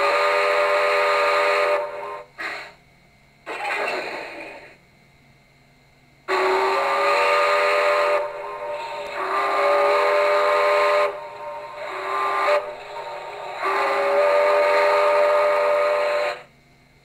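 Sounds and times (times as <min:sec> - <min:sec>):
steam locomotive whistle blasts: 0:00.0 - 0:02.8, 0:06.3 - 0:16.5.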